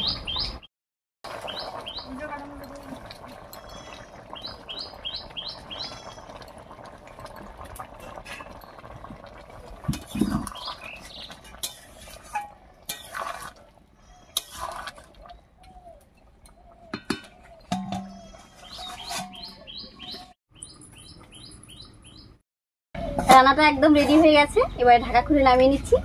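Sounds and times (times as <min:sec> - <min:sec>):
bird chirping: 0:00.0 - 0:00.7, 0:03.6 - 0:06.2, 0:15.6 - 0:22.4
curry bubbling: 0:01.2 - 0:20.0
metal spatula scraping pan: 0:17.8 - 0:19.7.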